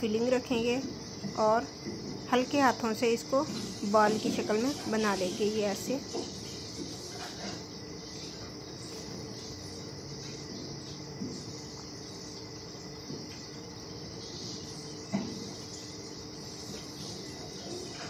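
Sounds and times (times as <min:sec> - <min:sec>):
insects chirring: 0:00.0 - 0:18.0.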